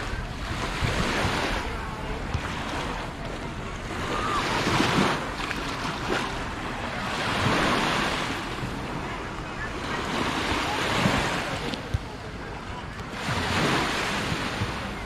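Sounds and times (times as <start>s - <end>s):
waves lapping on sandy shore: 0.0s - 15.0s
wind rumbling on microphone: 0.0s - 15.0s.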